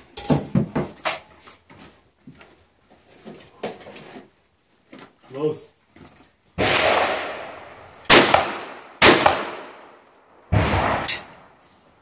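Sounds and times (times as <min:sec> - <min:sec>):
shotgun shots with echo: 0:06.6 - 0:09.9, 0:10.5 - 0:11.5.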